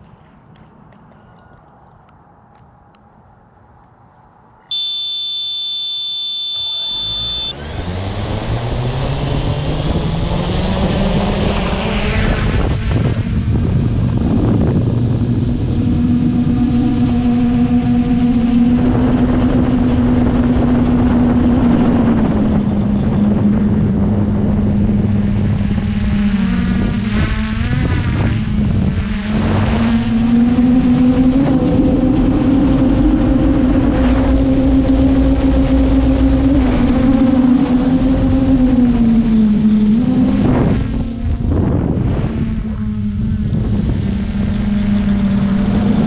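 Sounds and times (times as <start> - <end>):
steady tone: 4.6 - 8.0, 29.1 - 41.6
drone propellers buzzing: 4.7 - 46.0.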